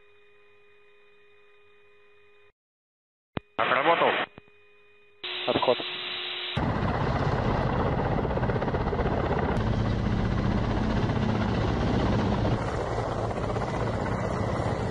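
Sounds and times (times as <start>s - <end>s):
helicopters hovering: 6.6s - 14.9s.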